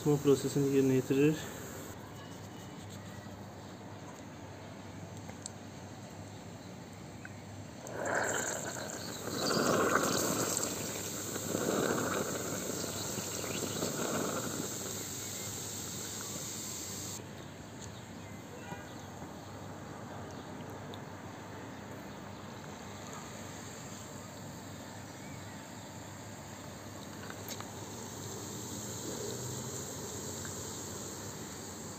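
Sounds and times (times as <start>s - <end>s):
faint hiss: 0.0s - 3.8s, 7.3s - 17.2s, 22.8s - 31.9s
liquid gurgling and fizzing: 7.8s - 17.2s.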